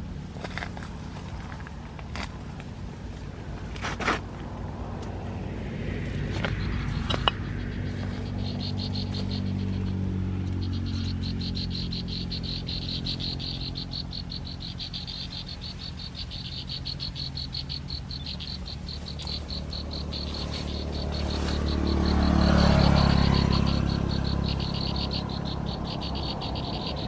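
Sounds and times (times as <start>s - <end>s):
high pulsed animal trill: 6.8s - 27.0s.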